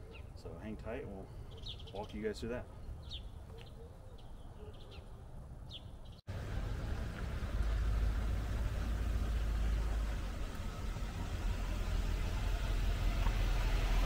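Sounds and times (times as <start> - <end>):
small birds chirping: 0.0 - 6.3
low rumble with hiss: 6.3 - 14.0.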